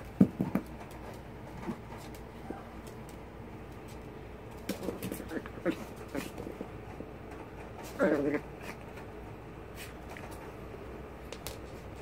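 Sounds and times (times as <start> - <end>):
puppy grunting and whining: 4.8 - 6.8, 7.6 - 9.0.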